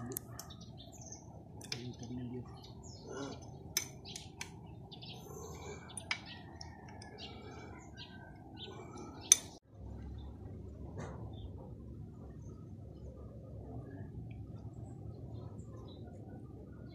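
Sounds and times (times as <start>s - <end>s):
birds chirping: 0.0s - 16.9s
low steady hum: 0.0s - 16.9s.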